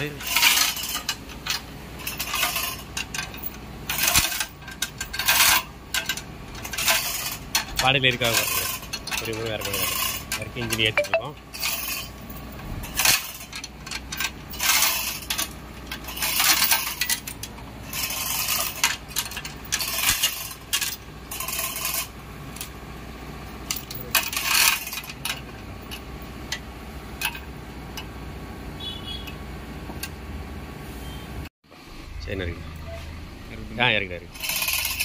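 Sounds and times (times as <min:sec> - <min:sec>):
metal tools clinking and scraping: 0:00.0 - 0:22.8, 0:23.5 - 0:28.1, 0:34.3 - 0:35.0.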